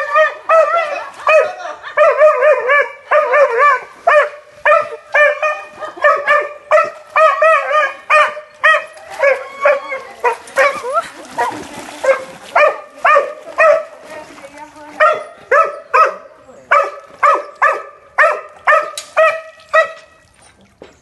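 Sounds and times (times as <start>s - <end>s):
dog barking and yelping: 0.0s - 13.8s, 15.0s - 20.0s.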